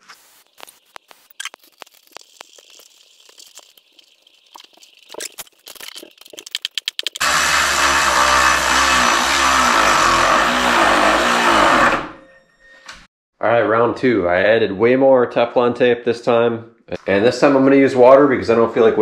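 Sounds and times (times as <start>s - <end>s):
power tool running: 7.2s - 12.2s.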